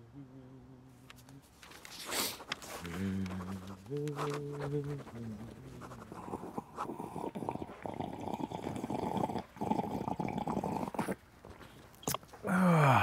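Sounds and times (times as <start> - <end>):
person slurping coffee: 1.8 - 12.2.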